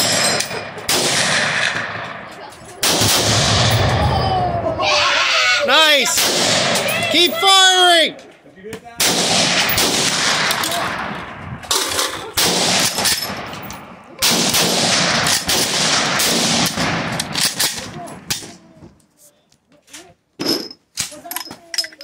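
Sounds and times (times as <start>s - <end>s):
heavy blasts ringing: 0.0s - 2.2s
rifle shots echoing: 0.0s - 4.2s, 6.1s - 7.4s, 9.0s - 18.6s.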